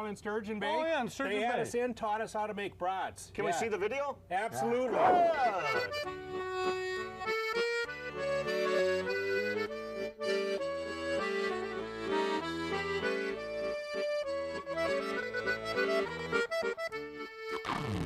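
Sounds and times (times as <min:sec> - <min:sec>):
accordion music with bass beat: 0:04.6 - 0:18.0.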